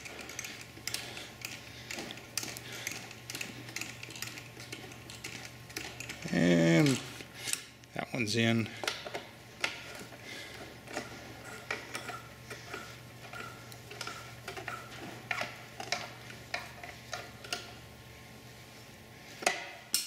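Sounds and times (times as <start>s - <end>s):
allen wrench metallic clicks: 0.0s - 7.6s.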